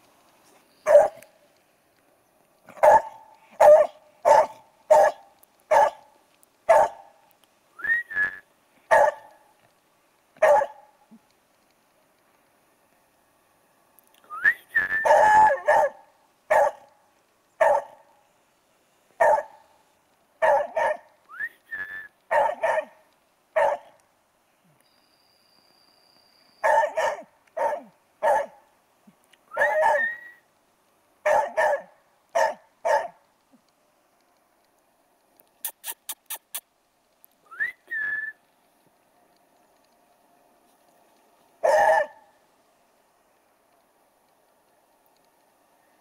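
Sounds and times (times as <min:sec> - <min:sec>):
dog barking: 0:00.9 - 0:01.2, 0:02.7 - 0:06.0, 0:06.7 - 0:07.1, 0:08.9 - 0:09.3, 0:10.4 - 0:10.9, 0:15.0 - 0:16.9, 0:17.6 - 0:18.0, 0:19.2 - 0:19.6, 0:20.4 - 0:21.1, 0:22.3 - 0:23.0, 0:23.6 - 0:24.0, 0:26.6 - 0:28.6, 0:29.6 - 0:30.1, 0:31.2 - 0:33.2, 0:41.6 - 0:42.3
dog yelping: 0:02.8 - 0:06.0, 0:06.7 - 0:07.0, 0:10.4 - 0:10.8, 0:15.0 - 0:16.8, 0:26.6 - 0:28.5, 0:29.6 - 0:30.2, 0:41.6 - 0:42.2.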